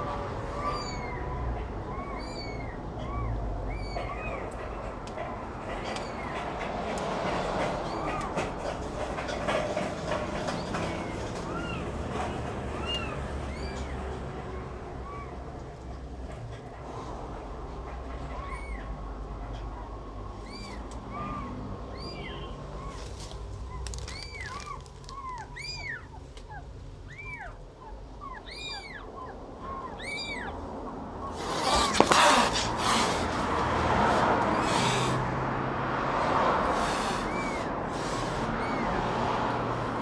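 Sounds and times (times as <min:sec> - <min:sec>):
kittens mewing: 0:00.0 - 0:40.0
rustling handling noise: 0:22.8 - 0:26.4, 0:31.6 - 0:32.8.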